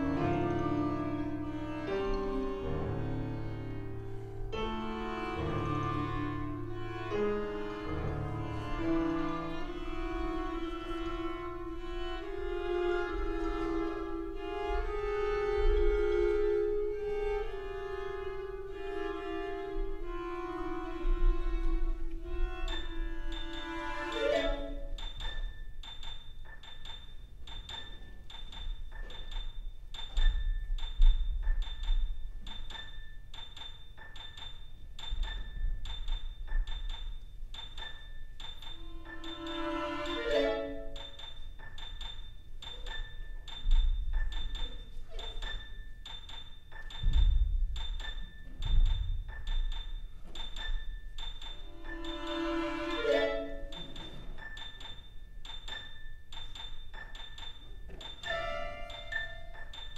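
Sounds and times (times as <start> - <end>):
sustained bowed strings: 0.0 - 25.0, 38.8 - 41.2, 51.6 - 54.0, 58.2 - 59.6.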